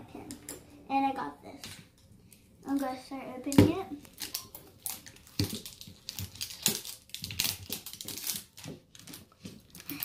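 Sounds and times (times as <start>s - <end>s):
wrapping crinkling and tearing: 4.0s - 10.0s.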